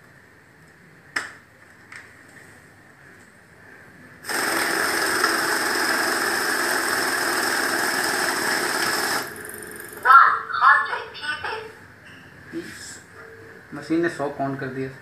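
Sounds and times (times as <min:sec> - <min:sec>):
currency counting machine rushing: 0:04.2 - 0:10.1.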